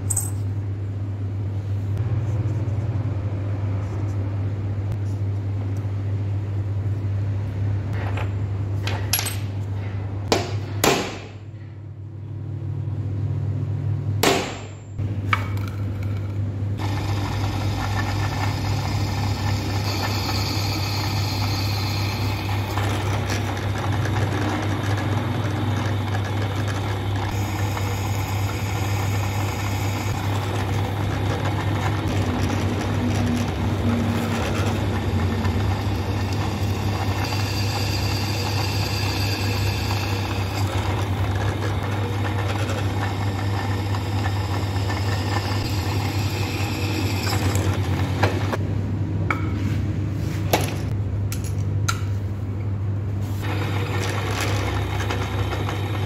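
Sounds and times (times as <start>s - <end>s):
motor hum: 15.0s - 48.7s, 53.4s - 56.0s
drill bit cutting metal: 16.8s - 25.8s, 26.9s - 48.6s.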